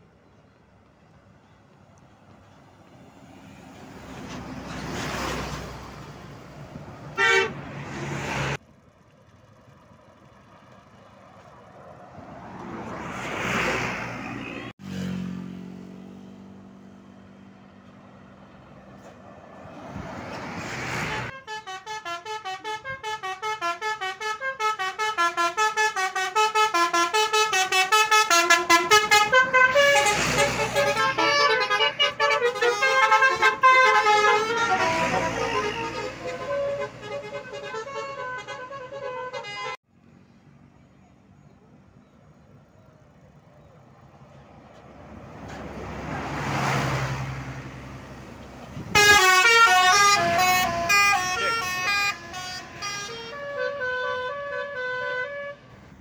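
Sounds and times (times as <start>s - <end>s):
buses passing: 0.0s - 56.0s
multi-tone bus horn melody: 7.0s - 8.6s, 20.8s - 39.8s, 48.8s - 56.0s.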